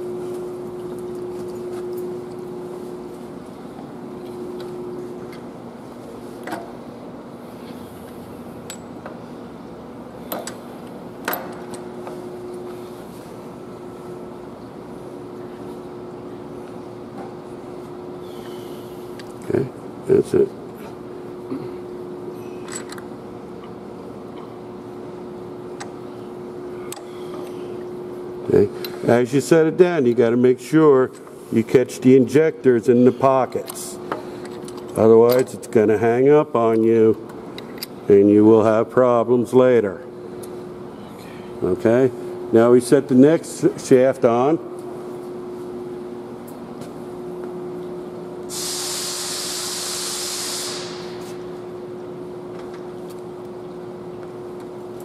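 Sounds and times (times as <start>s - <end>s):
fan humming: 0.0s - 55.0s
compressed air hissing: 48.5s - 51.4s.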